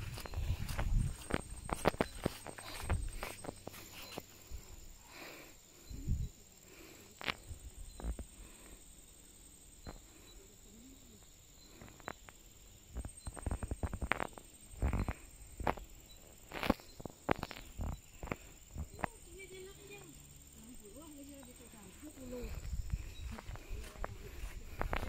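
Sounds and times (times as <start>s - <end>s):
footsteps: 0.0s - 4.7s, 21.7s - 25.0s
high-pitched insect drone: 0.0s - 25.0s.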